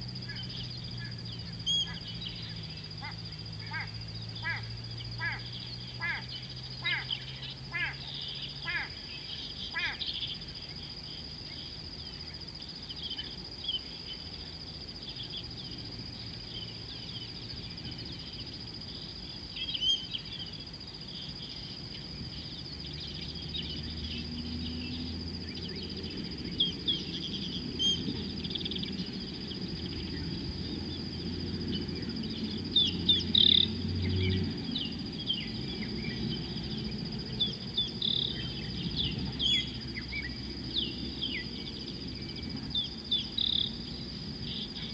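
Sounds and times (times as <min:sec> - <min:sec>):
bird chirps: 0:00.0 - 0:44.9
high-pitched insect drone: 0:00.0 - 0:44.9.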